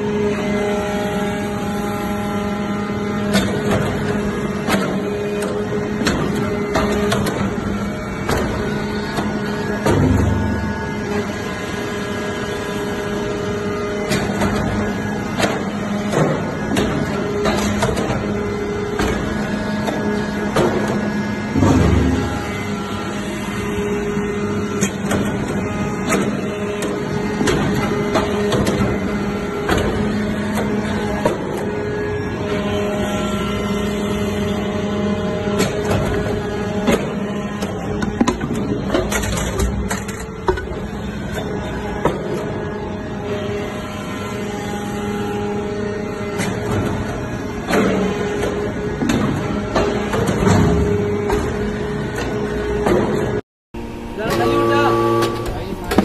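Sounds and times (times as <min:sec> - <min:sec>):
hydraulic power unit hum: 0:00.0 - 0:56.0
high multi-tone whine: 0:53.8 - 0:56.0.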